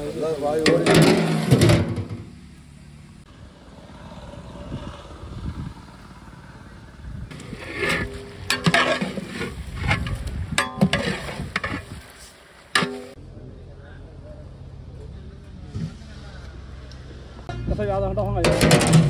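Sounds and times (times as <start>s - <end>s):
metal ladle scraping pot: 7.3s - 12.0s, 12.8s - 13.2s.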